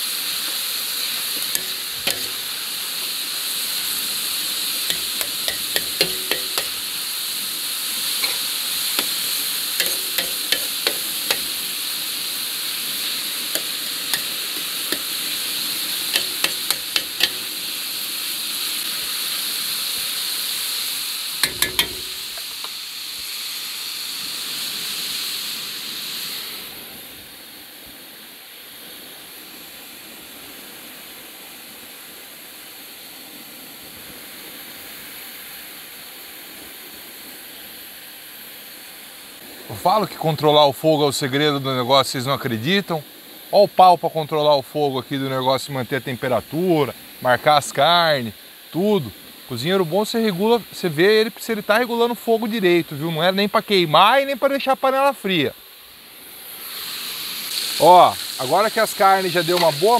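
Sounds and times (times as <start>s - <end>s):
meat sizzling in oil: 0.0s - 27.0s, 41.2s - 43.9s, 55.6s - 59.9s
spatula scraping metal pan: 1.3s - 2.6s, 4.9s - 6.9s, 8.2s - 11.7s, 13.0s - 17.6s, 21.4s - 22.5s.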